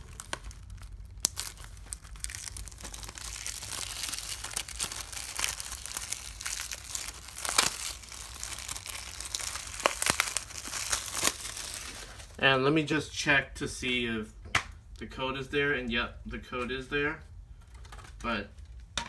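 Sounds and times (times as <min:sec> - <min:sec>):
plastic shrink-wrap crinkling and tearing: 0:00.0 - 0:12.4.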